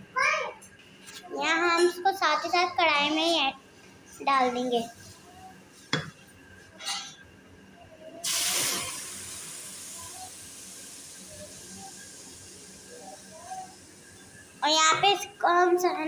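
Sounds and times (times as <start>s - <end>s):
paste sizzling in hot pan: 8.2s - 14.6s.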